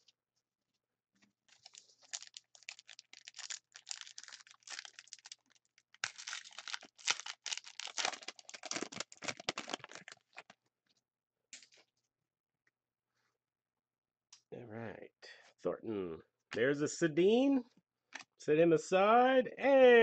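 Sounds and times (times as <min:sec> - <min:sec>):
cards rustling: 0:01.5 - 0:05.4, 0:06.0 - 0:10.5
foil wrapper crinkling: 0:01.5 - 0:10.6.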